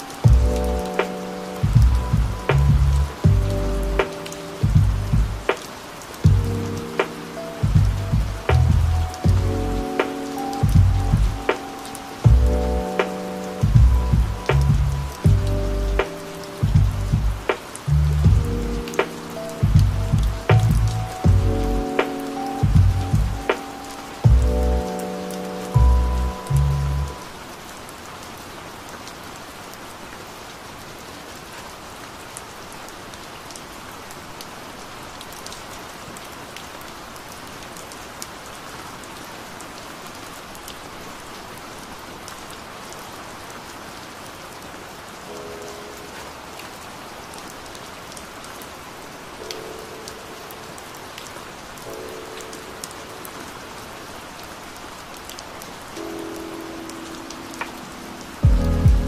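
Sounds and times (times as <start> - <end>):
steady rain falling: 0.0 - 59.0
raindrop taps: 0.2 - 25.4, 57.6 - 57.8.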